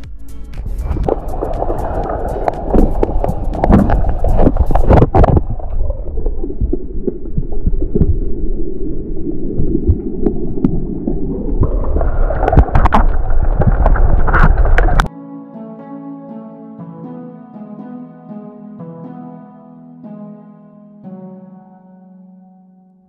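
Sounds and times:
music with held notes: 0.0s - 5.3s, 15.1s - 23.0s
muffled underwater rumble: 0.8s - 15.1s
clicks and knocks underwater: 0.9s - 15.1s.

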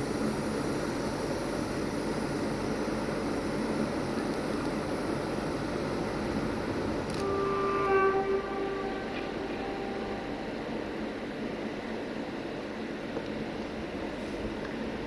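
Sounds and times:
rumbling rail traffic: 0.0s - 15.0s
locomotive horn blast: 7.1s - 11.2s.

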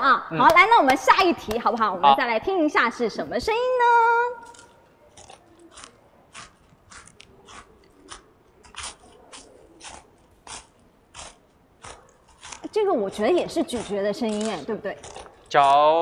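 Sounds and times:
person crunching potato chips: 4.4s - 12.7s.

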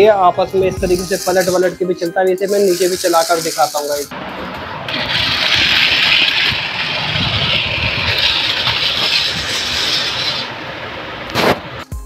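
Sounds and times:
toy motor and gears whirring: 0.8s - 4.1s, 5.0s - 10.5s.

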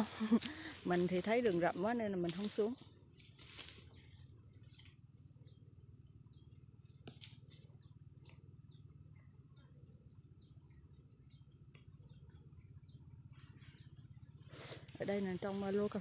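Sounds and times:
small birds chirping: 3.8s - 16.0s.

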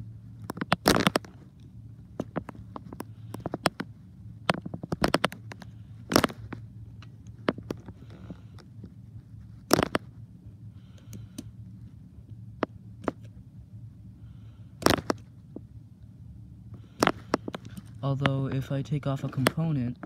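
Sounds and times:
steady low hum: 0.0s - 20.0s
small tool clicking and scraping: 4.5s - 8.7s.

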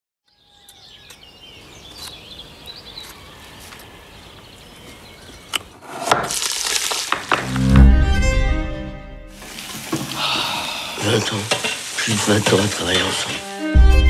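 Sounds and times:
birds chirping and singing: 0.3s - 5.8s
steady outdoor hiss: 0.4s - 7.5s, 9.3s - 13.8s.

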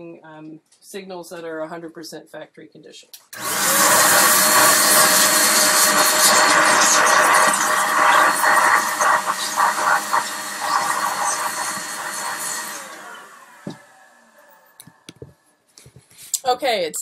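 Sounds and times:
electric air blower whining: 3.4s - 15.2s.

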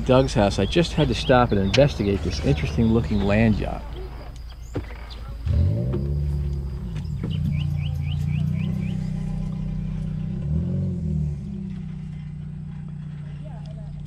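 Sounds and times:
bird chirping: 0.0s - 10.6s
engine running: 0.0s - 14.0s.

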